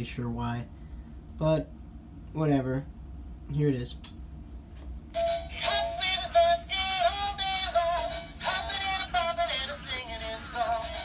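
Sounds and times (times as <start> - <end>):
toy speaker singing with music: 5.2 - 11.0.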